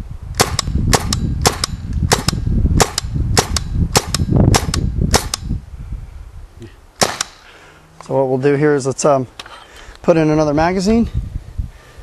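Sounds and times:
paintball gun shots: 0:00.4 - 0:05.5, 0:07.0 - 0:07.5.

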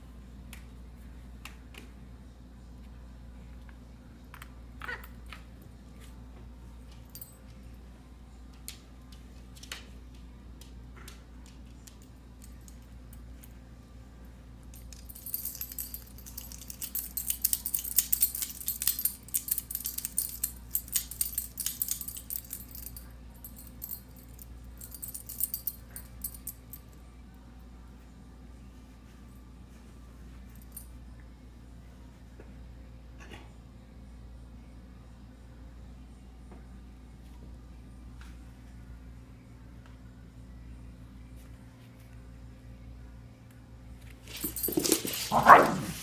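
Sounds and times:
collar tags jingling: 0:14.7 - 0:26.8, 0:44.3 - 0:46.0.

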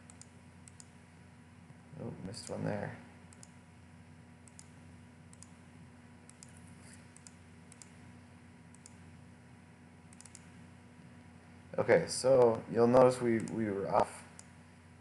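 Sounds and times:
computer mouse clicking: 0:00.0 - 0:00.9, 0:03.3 - 0:03.6, 0:04.4 - 0:05.6, 0:06.3 - 0:08.0, 0:08.7 - 0:09.0, 0:10.1 - 0:10.5, 0:13.4 - 0:13.6
steady low hum: 0:00.0 - 0:15.0.

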